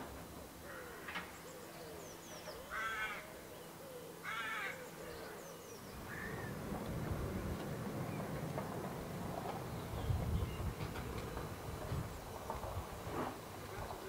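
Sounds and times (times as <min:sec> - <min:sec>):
crow cawing: 0:00.6 - 0:01.3, 0:02.7 - 0:03.4, 0:04.2 - 0:04.9, 0:06.1 - 0:06.6
small birds chirping: 0:01.3 - 0:12.4.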